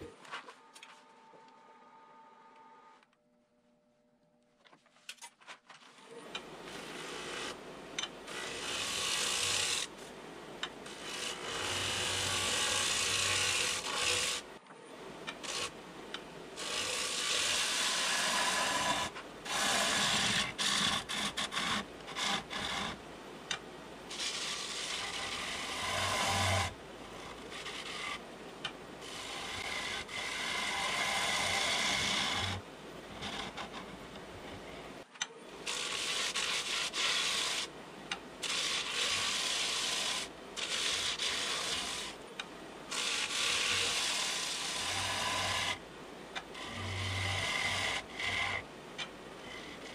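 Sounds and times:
gouge shearing wood on lathe: 0:06.6 - 0:14.6, 0:15.3 - 0:15.8, 0:16.6 - 0:23.0, 0:24.1 - 0:28.3, 0:29.0 - 0:34.6, 0:35.6 - 0:37.7, 0:38.4 - 0:42.2, 0:42.9 - 0:45.8, 0:46.4 - 0:48.7, 0:49.4 - 0:49.9.

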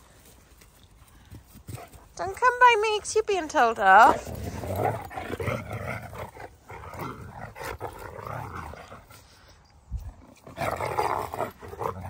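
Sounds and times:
dogs growling in play: 0:04.1 - 0:12.0.

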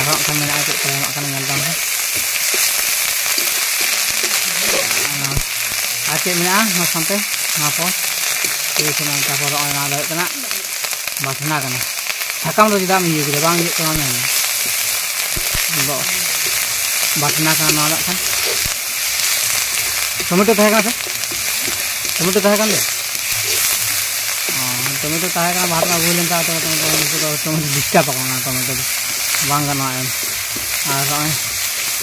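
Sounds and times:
person talking: 0:00.0 - 0:01.9, 0:04.1 - 0:08.0, 0:12.4 - 0:14.3, 0:15.6 - 0:18.6, 0:20.2 - 0:21.0, 0:22.1 - 0:22.9, 0:24.4 - 0:30.2, 0:30.8 - 0:31.5
food sizzling in hot oil: 0:00.0 - 0:32.0.

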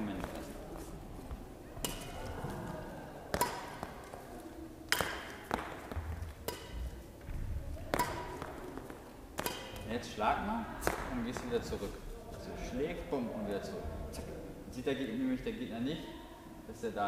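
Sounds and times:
racket striking shuttlecock: 0:01.8 - 0:10.2, 0:10.8 - 0:11.9.

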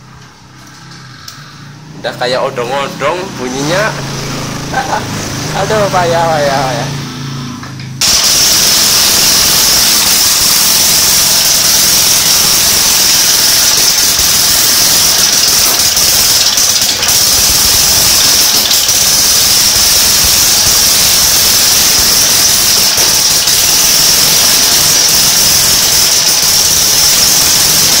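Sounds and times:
small stationary engine running: 0:03.1 - 0:28.0.

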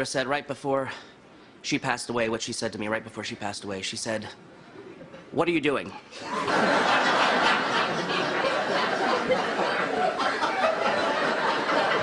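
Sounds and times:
studio audience laughing: 0:06.1 - 0:12.0.

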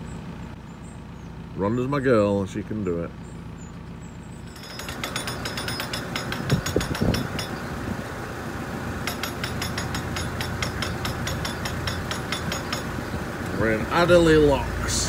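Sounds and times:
diesel engine ticking over: 0:00.0 - 0:15.0
loud knocks: 0:04.7 - 0:07.6, 0:09.1 - 0:13.0.

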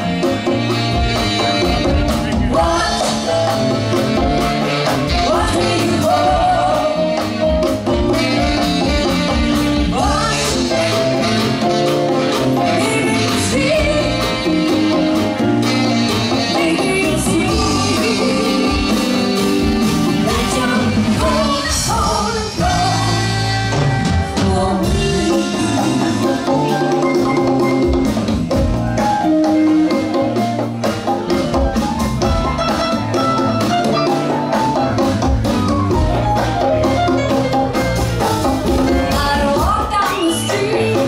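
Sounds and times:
live funk band: 0:00.0 - 0:41.0
woman singing lead vocals: 0:02.4 - 0:03.6, 0:05.1 - 0:07.6, 0:09.8 - 0:11.7, 0:12.6 - 0:14.6, 0:16.4 - 0:26.9, 0:38.8 - 0:41.0.

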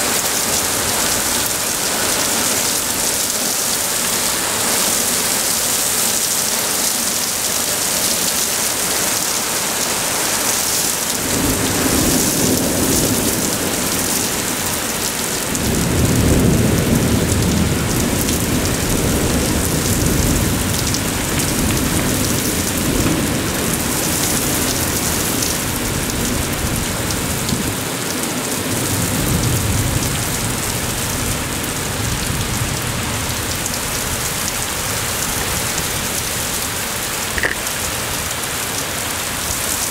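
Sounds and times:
heavy rain pouring: 0:00.0 - 0:39.9
rolling thunder: 0:11.2 - 0:27.8.

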